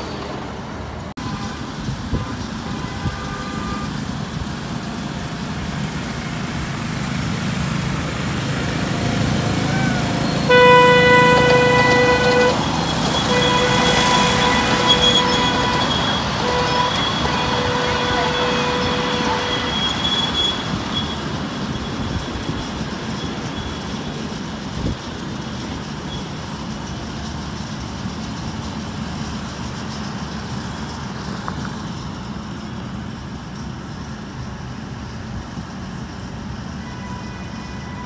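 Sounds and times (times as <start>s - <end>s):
steady high tone: 9.3s - 22.5s
miniature train wheels clattering: 10.6s - 36.6s.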